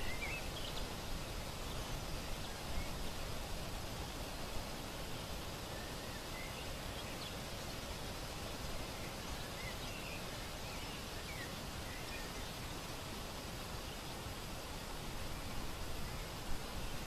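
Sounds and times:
faint bird chirps: 0:00.0 - 0:03.0, 0:05.1 - 0:07.8, 0:08.4 - 0:12.9
outdoor background noise: 0:00.0 - 0:17.0.

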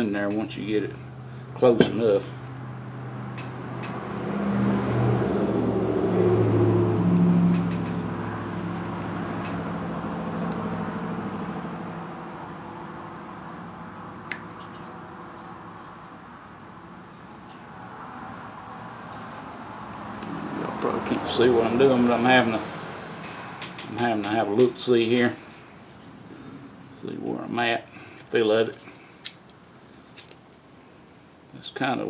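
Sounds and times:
vehicle engine passing: 0:01.2 - 0:27.6
sharp click: 0:14.3 - 0:14.8.

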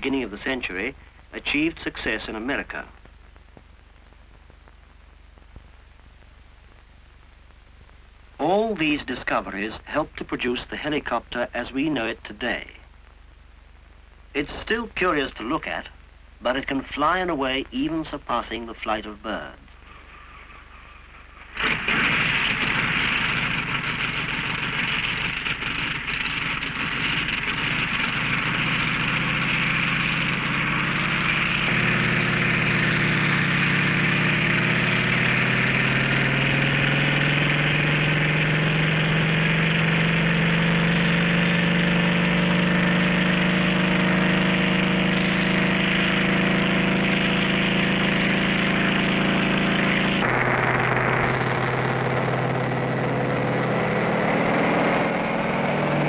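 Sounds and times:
helicopter engine rising in pitch: 0:21.4 - 0:56.0.

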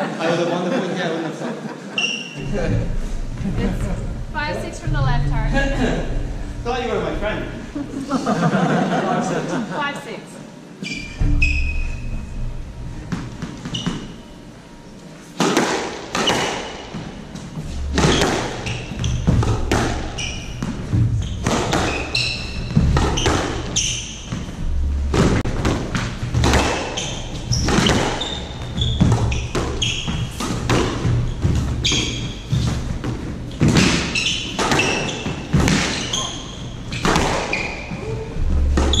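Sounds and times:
shoes squeaking on wooden floor: 0:10.8 - 0:12.2, 0:13.1 - 0:14.5, 0:16.1 - 0:39.0
squash ball hitting rackets and walls: 0:11.0 - 0:14.2, 0:15.3 - 0:39.0.

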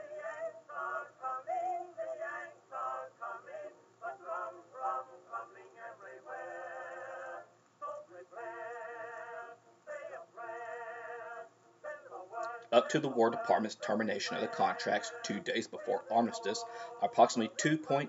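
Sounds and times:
background music: 0:00.0 - 0:18.0
man singing: 0:08.4 - 0:18.0.

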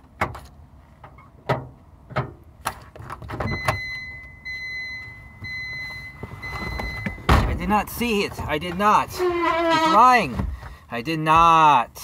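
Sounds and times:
car warning chime: 0:03.5 - 0:08.3.

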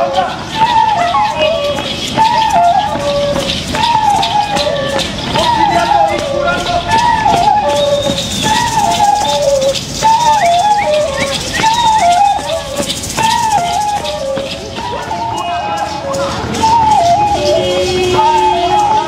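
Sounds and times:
flute playing falling tune: 0:00.0 - 0:19.0.

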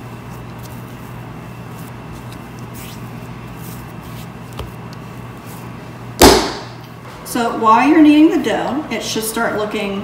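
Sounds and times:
dough kneaded by hand: 0:00.0 - 0:06.7.

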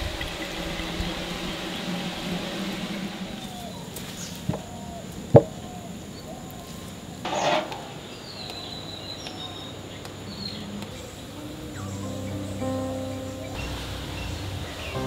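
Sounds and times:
soft instrumental music: 0:11.3 - 0:15.0.

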